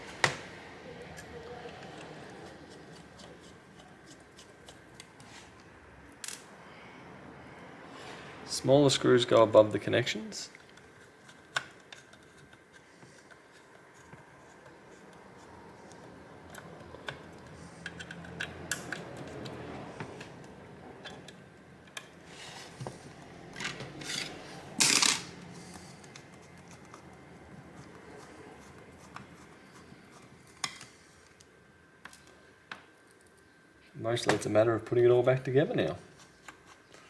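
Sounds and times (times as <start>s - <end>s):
screwdriver clicking and scratching: 10.6s - 19.6s, 26.0s - 27.2s.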